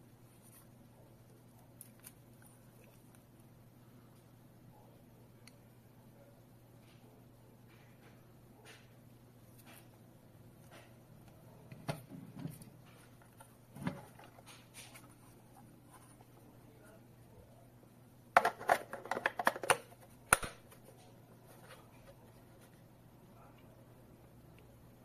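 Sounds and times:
plastic clicks and rattles: 18.4s - 20.8s.

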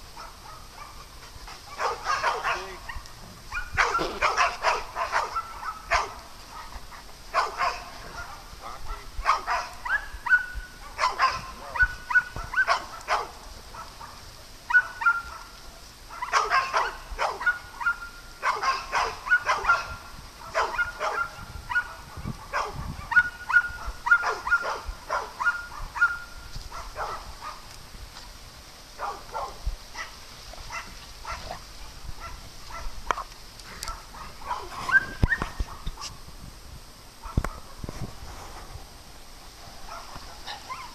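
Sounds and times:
dogs barking and yipping: 0.0s - 27.8s, 29.0s - 36.2s, 37.2s - 37.9s, 39.7s - 40.9s
dogs whining: 34.5s - 35.6s.

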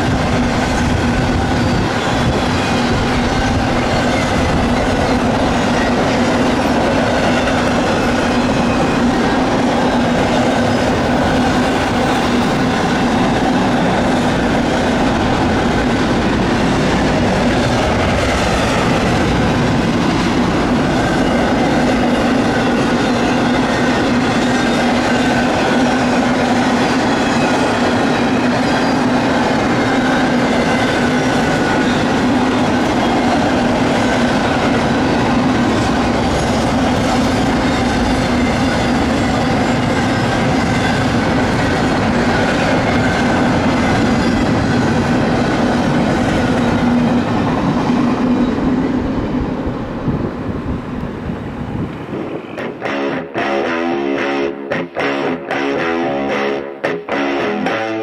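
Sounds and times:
train wheels rumbling on rails: 0.0s - 53.7s.

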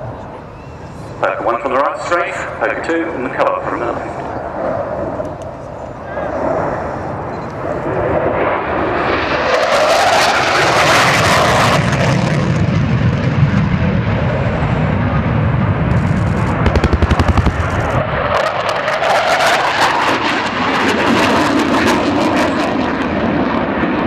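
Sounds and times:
jet engine roar: 0.0s - 24.0s
fluttering pulse: 15.9s - 18.4s.

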